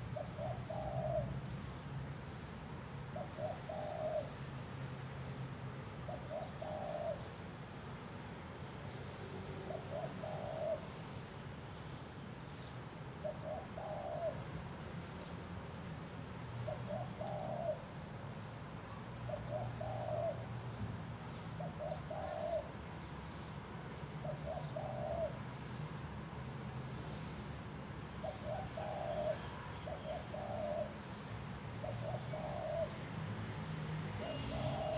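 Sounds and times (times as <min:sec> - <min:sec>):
dove cooing: 0:00.0 - 0:01.7, 0:03.2 - 0:04.4, 0:06.1 - 0:07.4, 0:09.6 - 0:10.9, 0:13.2 - 0:14.5, 0:16.6 - 0:18.0, 0:19.3 - 0:22.8, 0:24.2 - 0:25.8, 0:28.2 - 0:33.1, 0:34.2 - 0:34.9.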